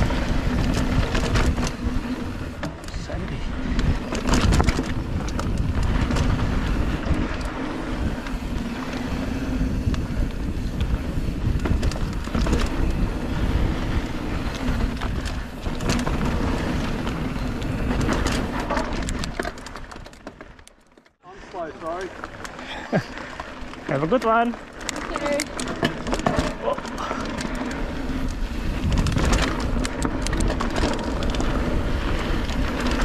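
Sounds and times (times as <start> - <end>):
wind rush on microphone: 0.0 - 19.6, 26.9 - 33.0
bike rattling and clicking: 0.0 - 33.0
tyres rumbling on hard dirt: 0.0 - 33.0.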